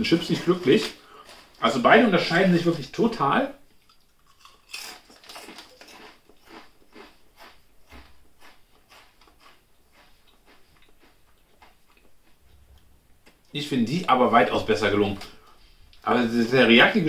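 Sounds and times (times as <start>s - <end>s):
chewing crisp potato chips: 3.7s - 13.5s.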